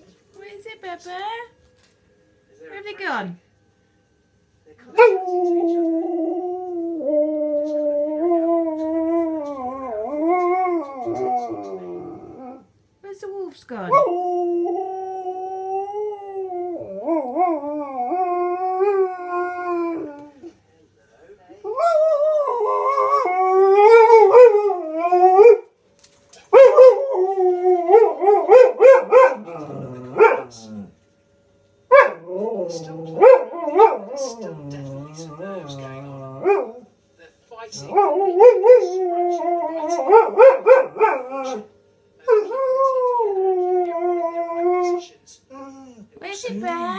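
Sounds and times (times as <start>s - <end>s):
dog howling: 4.9s - 12.7s, 13.9s - 20.6s, 21.6s - 25.7s, 26.5s - 30.9s, 31.9s - 36.9s, 37.8s - 41.7s, 42.3s - 46.1s.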